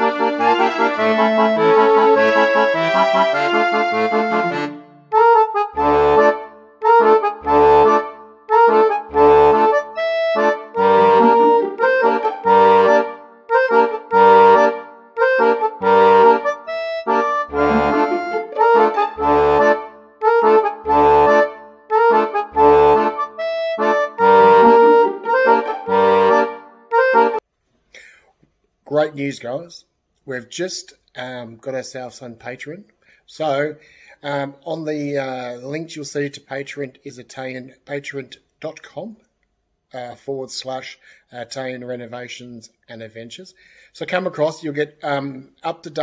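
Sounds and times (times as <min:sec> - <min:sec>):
background music with steady beat: 0:00.0 - 0:27.4.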